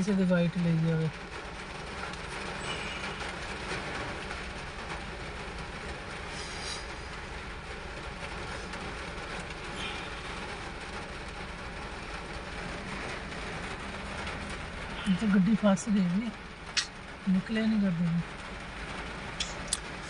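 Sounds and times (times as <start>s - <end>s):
heavy rain: 0.0s - 20.0s
road noise: 0.0s - 20.0s.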